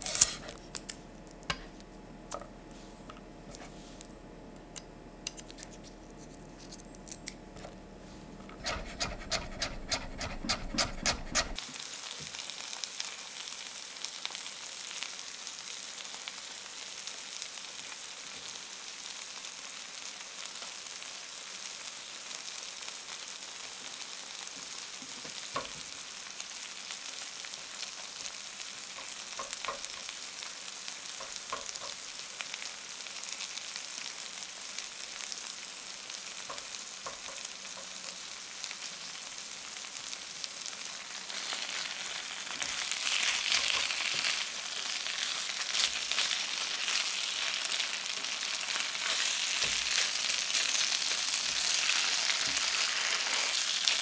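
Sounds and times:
knife chopping on wooden board: 8.5s - 11.6s
spatula knocking on pan: 8.6s - 11.6s, 29.0s - 30.1s, 31.2s - 32.0s, 36.5s - 38.0s
meat sizzling in a frying pan: 11.4s - 54.0s.

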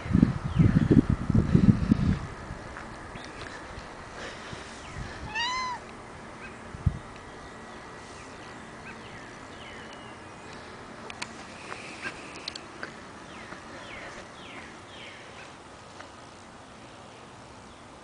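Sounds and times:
kitten meowing: 5.3s - 5.8s.

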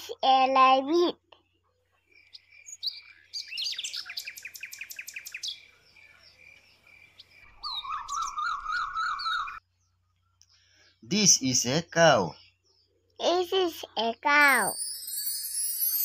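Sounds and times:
birds chirping: 0.7s - 16.0s
bird warbling song: 1.4s - 13.2s.

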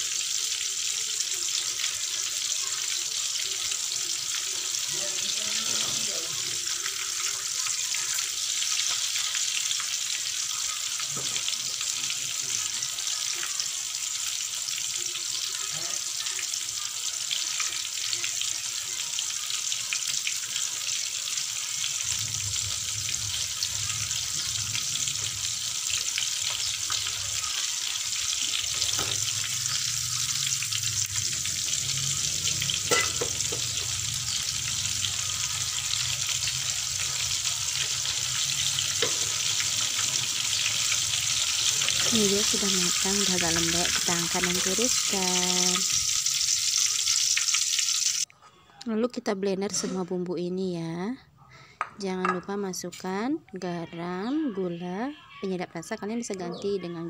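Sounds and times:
tomatoes sizzling in oil: 0.0s - 48.3s
metal spatula stirring: 39.0s - 40.6s.

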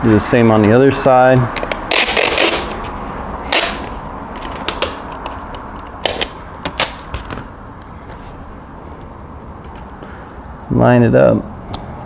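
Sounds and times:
packing tape crackling: 1.5s - 7.5s.

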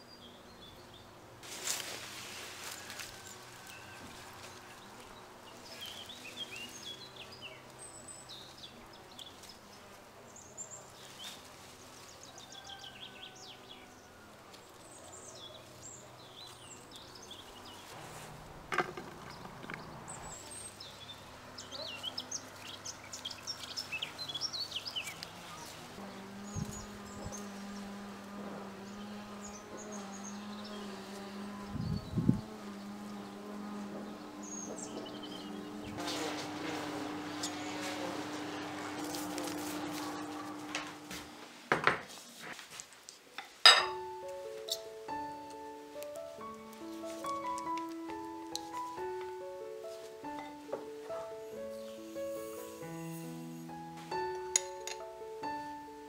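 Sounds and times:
small birds chirping: 0.0s - 41.1s
insect buzzing: 17.3s - 41.6s, 49.0s - 56.0s.

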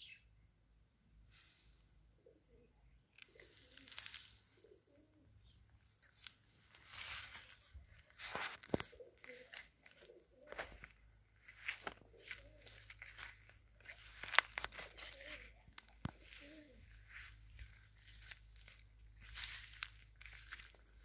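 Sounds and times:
dove cooing: 2.1s - 5.7s, 8.0s - 20.6s
rustling: 3.2s - 4.8s, 6.0s - 21.0s.

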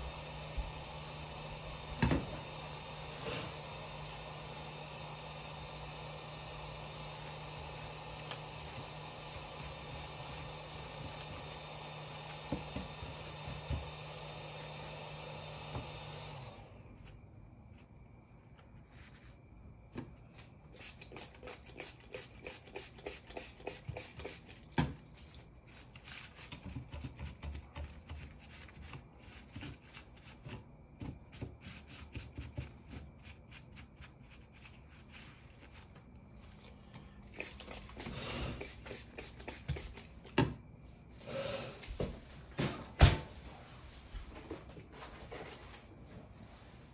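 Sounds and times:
hot air station hissing: 0.0s - 17.1s, 20.7s - 24.6s, 36.6s - 40.4s, 41.1s - 42.4s.

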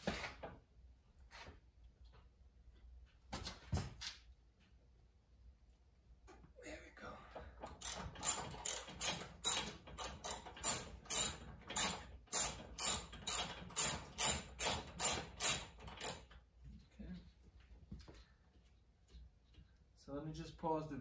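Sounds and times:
socket wrench ratchet clicking: 7.7s - 16.3s.

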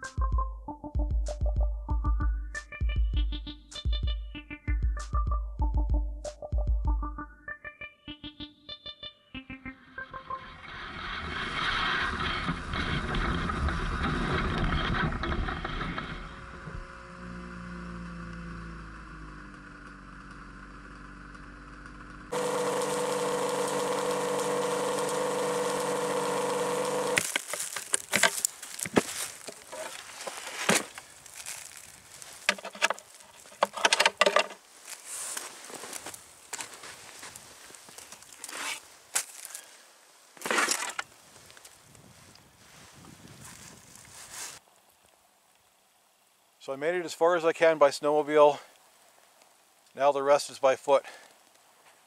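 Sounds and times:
snowmobile engines running: 10.3s - 27.8s
engine idling: 12.7s - 27.2s
gear rattling in wooden box: 22.4s - 31.7s, 32.4s - 34.6s.

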